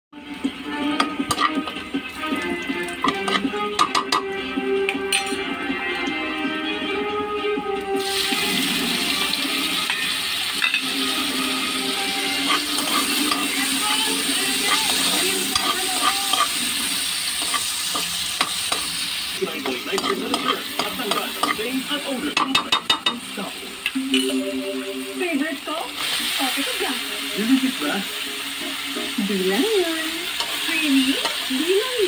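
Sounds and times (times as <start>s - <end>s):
food sizzling in oil: 0.1s - 32.0s
utensil tapping and scraping wok: 0.9s - 5.5s, 9.8s - 24.2s, 29.8s - 32.0s
stirring in a wok: 12.3s - 23.0s.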